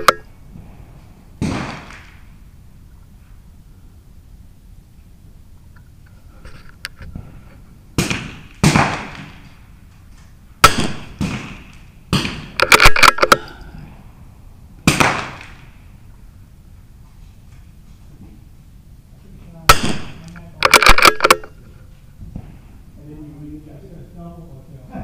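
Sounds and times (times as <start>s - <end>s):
rifle shots with short echo: 8.0s - 9.5s, 10.6s - 13.6s, 14.8s - 15.7s, 19.7s - 21.6s.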